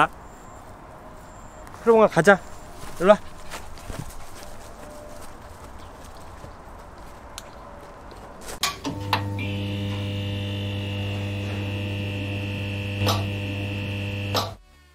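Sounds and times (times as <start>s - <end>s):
faint outdoor background noise: 0.0s - 14.9s
electric hum and buzz: 8.6s - 14.6s
sharp electrical crackles: 9.4s - 14.6s.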